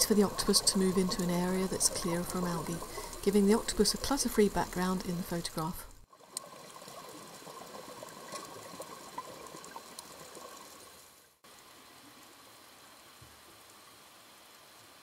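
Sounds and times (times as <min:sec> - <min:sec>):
steady even hiss: 0:00.0 - 0:07.8
small underwater clicks: 0:00.0 - 0:11.0
crackling hiss of water: 0:00.0 - 0:15.0.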